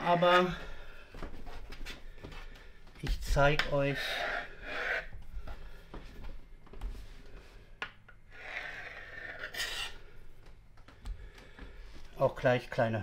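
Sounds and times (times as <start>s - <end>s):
knife scraping along wooden table: 3.9s - 5.1s, 8.3s - 10.1s.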